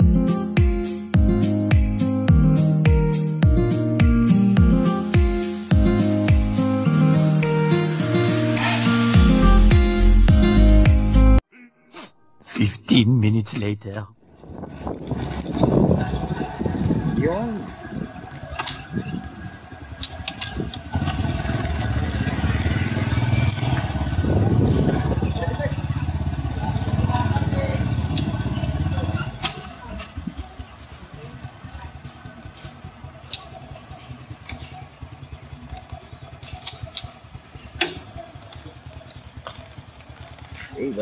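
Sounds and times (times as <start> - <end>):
vehicle engine rumbling: 13.0 - 41.0.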